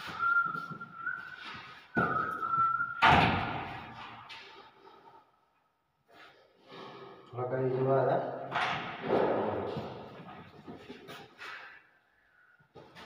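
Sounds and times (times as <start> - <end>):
door shutting with a bang: 3.0 - 4.0.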